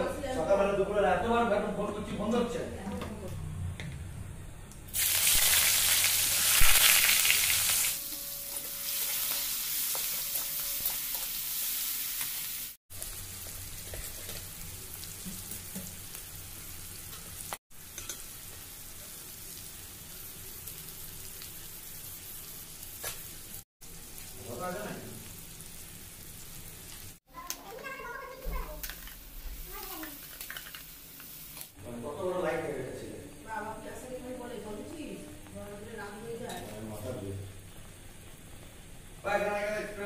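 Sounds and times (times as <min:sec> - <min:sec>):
food sizzling in hot oil: 0:04.9 - 0:34.9.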